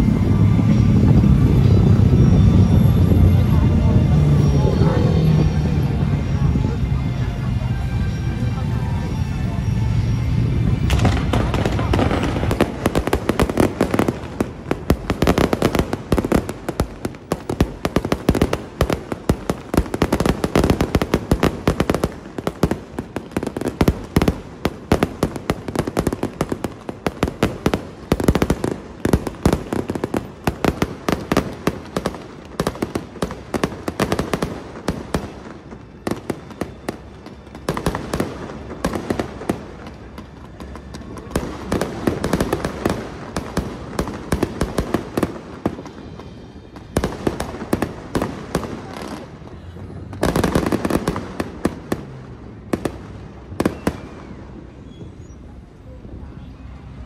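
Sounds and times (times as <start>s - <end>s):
fireworks cracking and banging: 10.7s - 55.2s.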